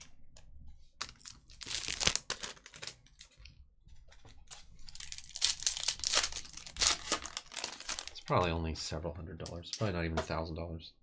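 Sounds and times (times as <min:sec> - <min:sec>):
foil wrapper crinkling and tearing: 0:01.0 - 0:03.4, 0:04.8 - 0:08.3.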